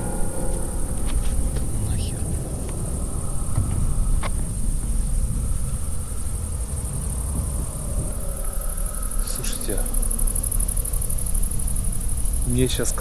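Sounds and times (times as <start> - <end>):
crickets chirping: 0.0 - 13.0
low uneven rumble: 0.0 - 13.0.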